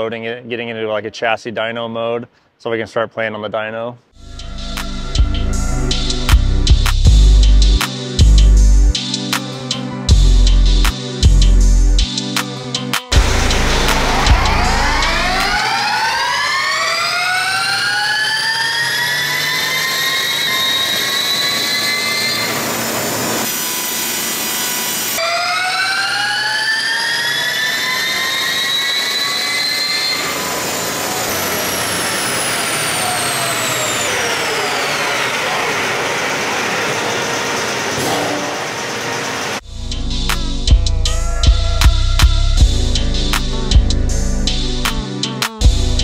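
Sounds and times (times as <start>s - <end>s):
electric motor whine: 13.2s - 39.6s.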